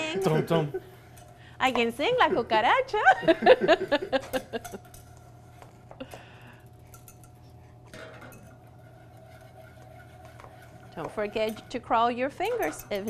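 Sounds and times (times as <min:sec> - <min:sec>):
faint steady hum: 0:00.0 - 0:13.0
whisk scraping saucepan: 0:06.9 - 0:13.0.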